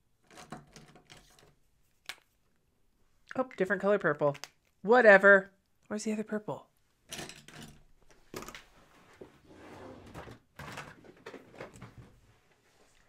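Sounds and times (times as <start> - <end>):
rummaging scrapes and soft knocks: 0.2 - 2.0, 7.1 - 13.0.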